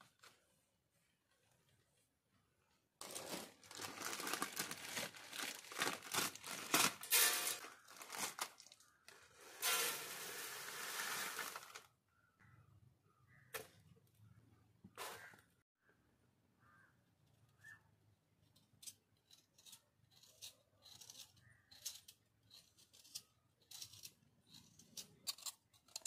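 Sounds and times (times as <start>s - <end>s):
plastic packet crinkling: 3.0s - 9.0s, 9.8s - 11.9s
powder pouring onto steel plate: 9.4s - 11.9s.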